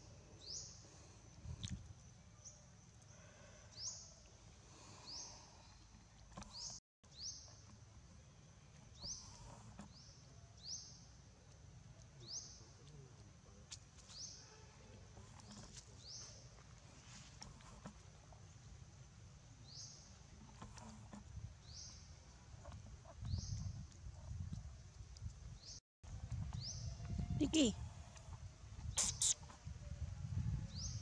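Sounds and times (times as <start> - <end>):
small animal high chirp: 28.9 - 29.5.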